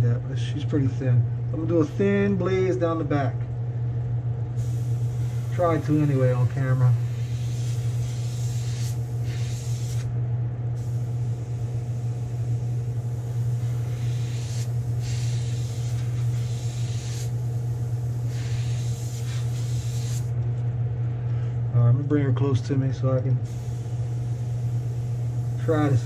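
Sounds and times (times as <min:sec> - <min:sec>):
low machine hum: 0:00.0 - 0:26.0
airbrush hissing: 0:04.6 - 0:10.1, 0:10.8 - 0:20.3, 0:23.4 - 0:26.0.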